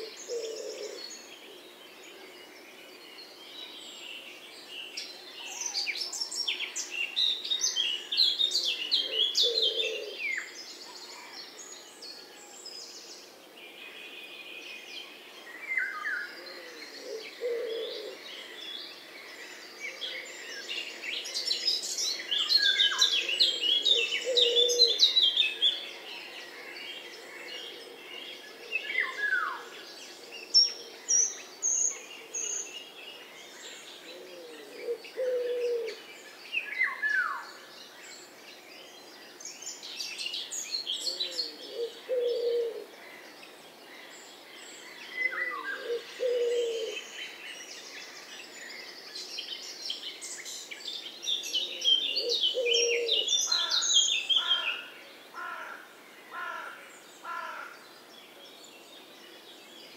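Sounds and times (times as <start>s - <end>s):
pigeon cooing: 0.0s - 1.0s, 9.0s - 10.2s, 16.5s - 18.2s, 23.5s - 25.0s, 34.1s - 36.0s, 41.1s - 42.9s, 45.5s - 47.0s, 52.2s - 53.3s.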